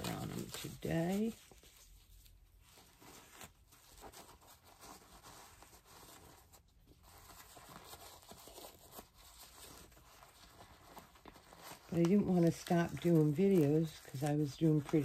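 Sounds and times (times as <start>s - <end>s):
diaper rustling and crinkling: 0.0s - 15.0s.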